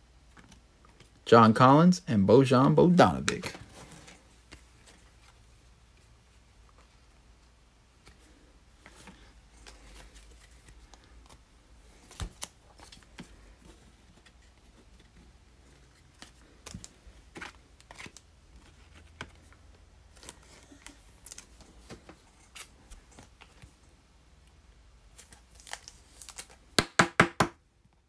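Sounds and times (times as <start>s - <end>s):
cards and plastic sleeve handled: 0.1s - 1.2s, 3.0s - 26.8s.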